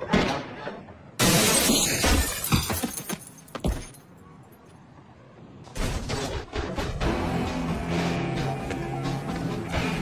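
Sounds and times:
glass window shattering: 1.2 - 3.3.

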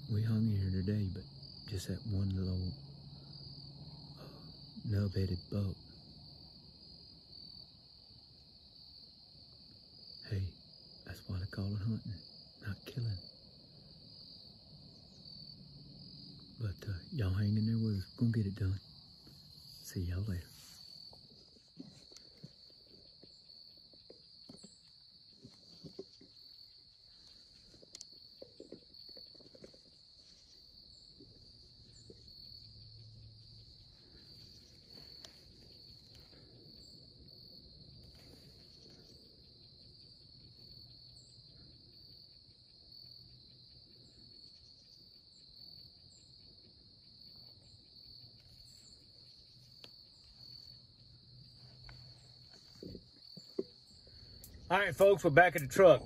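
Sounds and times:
cricket chorus trilling: 0.0 - 56.0
faint rustles and clicks: 19.2 - 32.4.

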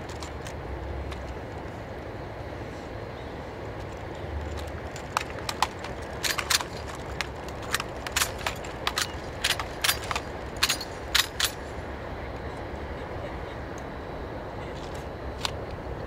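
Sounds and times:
metal parts rattling: 4.5 - 11.7.

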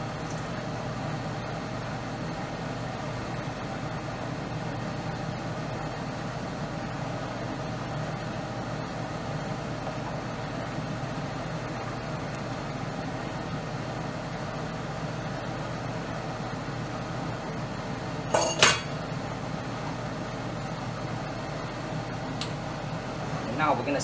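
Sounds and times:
gas burner hum and hiss: 0.0 - 24.0.

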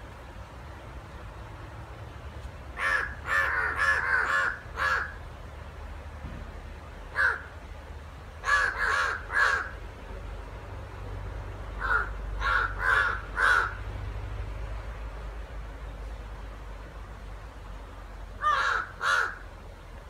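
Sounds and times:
crows cawing: 2.8 - 5.2, 7.1 - 7.5, 8.4 - 9.8, 11.8 - 13.8, 18.4 - 19.5.

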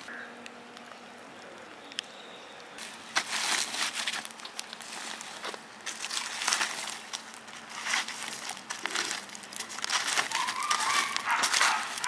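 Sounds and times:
wood fire crackling: 0.0 - 12.0
stick raking embers: 0.8 - 12.0
foil crinkling: 2.8 - 12.0.

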